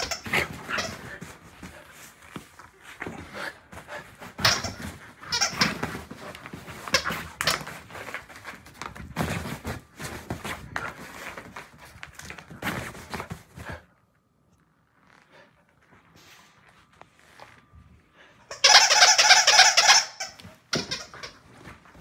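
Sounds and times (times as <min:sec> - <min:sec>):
bedding rustling and thumps: 0:00.0 - 0:13.9, 0:20.4 - 0:22.0.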